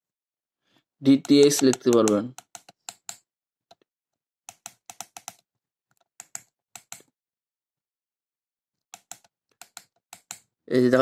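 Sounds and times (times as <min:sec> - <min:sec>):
plastic keypad buttons clicking: 0:01.2 - 0:03.2, 0:04.5 - 0:05.4.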